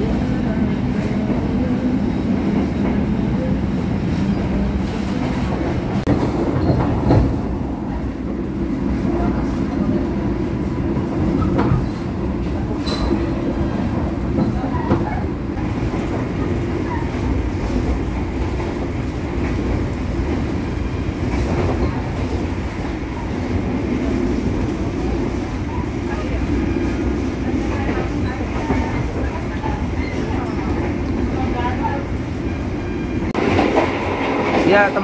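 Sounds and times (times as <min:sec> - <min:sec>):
train rumbling: 0:00.0 - 0:35.0.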